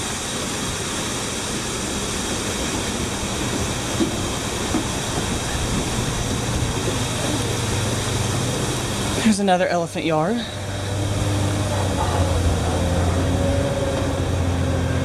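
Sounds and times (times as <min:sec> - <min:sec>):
waterfall rushing: 0:00.0 - 0:15.0
low hum: 0:01.3 - 0:15.0.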